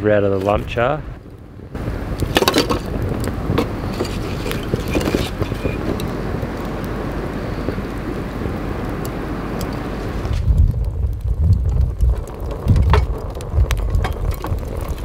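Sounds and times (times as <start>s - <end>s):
charcoal fire crackling: 0.0s - 15.0s
wind rumbling on microphone: 0.0s - 15.0s.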